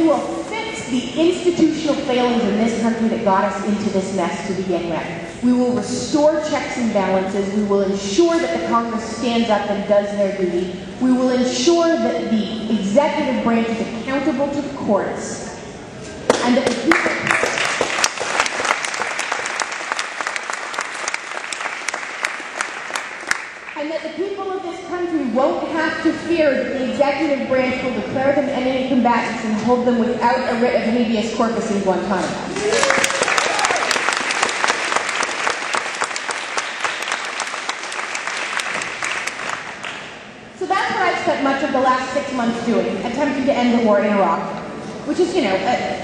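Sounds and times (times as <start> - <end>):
audience applauding: 16.9 - 23.8, 32.6 - 40.1.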